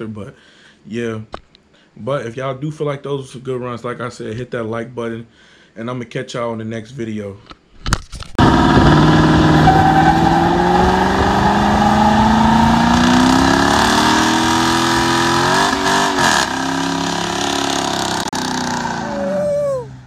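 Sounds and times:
spinning tyres hissing: 8.4 - 19.3
car engine revving high: 8.4 - 20.0.

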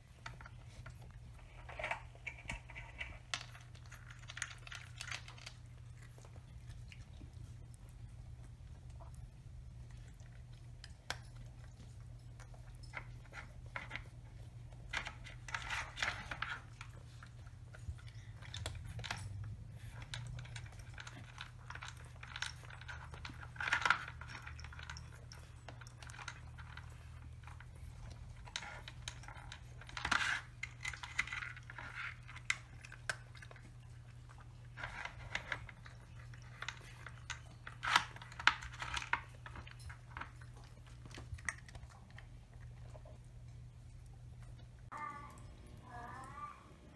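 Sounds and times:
cats chewing: 0.0 - 46.9
plastic pieces and kibble rattling: 1.4 - 5.7, 17.9 - 33.6, 34.7 - 42.2.

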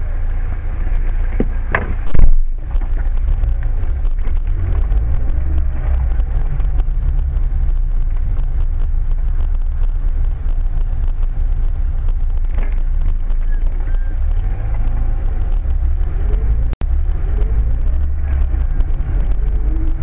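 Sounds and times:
car engine and tyres rumbling: 0.0 - 20.0.

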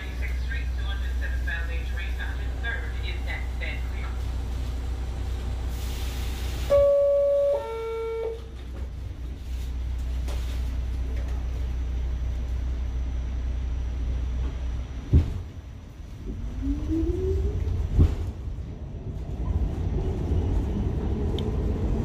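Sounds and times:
steady low rumble: 0.0 - 22.0
two-tone horn: 6.7 - 8.5.

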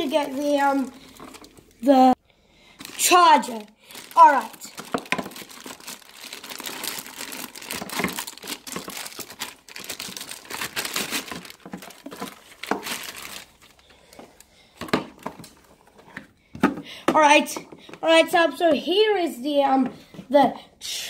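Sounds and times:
plastic bag crinkling: 0.0 - 2.1, 2.7 - 14.4.

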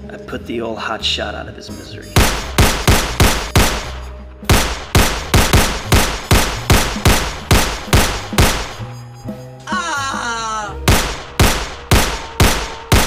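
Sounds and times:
rapid pistol gunfire: 2.2 - 8.8, 10.9 - 13.0.

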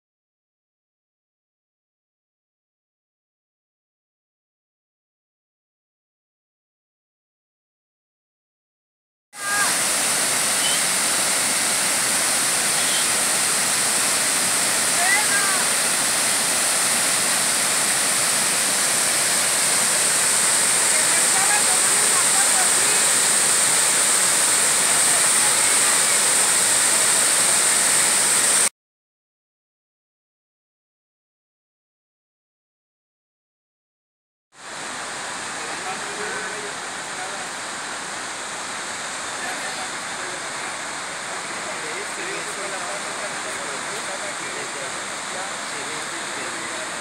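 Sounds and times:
waterfall rushing: 9.4 - 28.7, 34.6 - 47.0.

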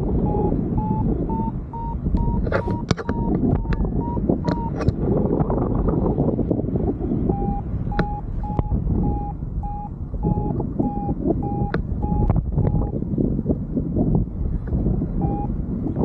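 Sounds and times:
variometer beeping: 0.0 - 5.0, 7.2 - 13.0, 15.1 - 16.0
wind buffeting microphone: 0.0 - 16.0
sharp ticks: 0.8 - 5.0, 7.4 - 12.9.

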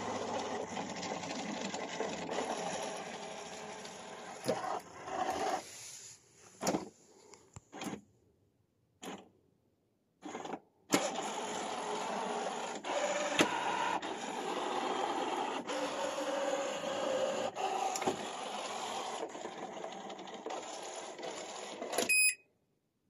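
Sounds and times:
robot vacuum running: 0.0 - 5.7, 10.3 - 22.1.

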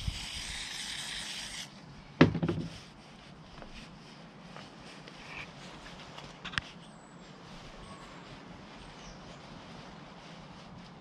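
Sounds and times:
aerosol spray can hissing: 0.0 - 1.7
can knocking on bench: 2.2 - 2.7.

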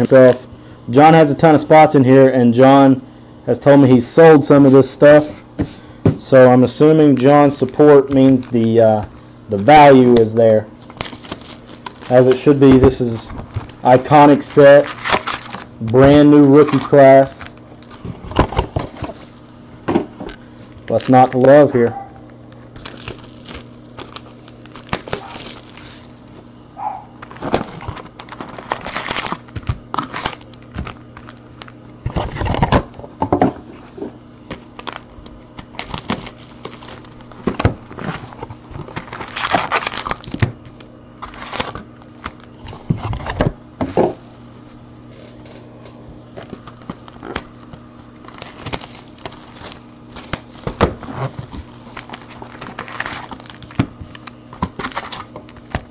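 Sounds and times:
wrappers crinkling and rustling: 10.8 - 19.6, 20.3 - 32.7, 33.8 - 43.3, 46.4 - 55.9.

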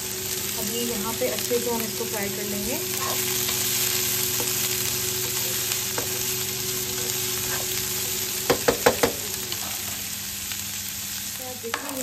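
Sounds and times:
vegetables sizzling in oil: 0.0 - 12.0
spatula stirring in pan: 2.9 - 10.0
spatula knocking against pan: 8.4 - 9.2.

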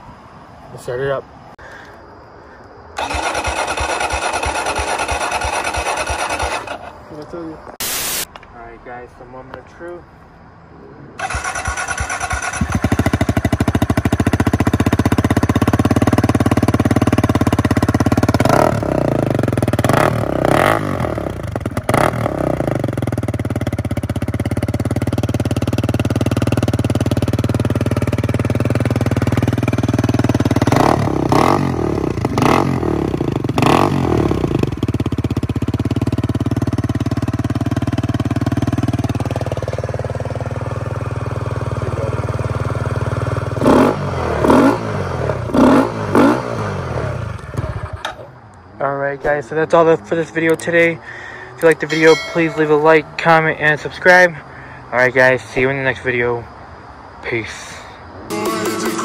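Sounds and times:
motorcycle engine idling: 3.0 - 7.0, 11.2 - 20.6, 21.2 - 33.6, 34.5 - 43.6
motorcycle engine revving: 3.0 - 7.1, 11.2 - 48.2
motorcycle engine starting: 3.0 - 7.5, 11.2 - 48.4.

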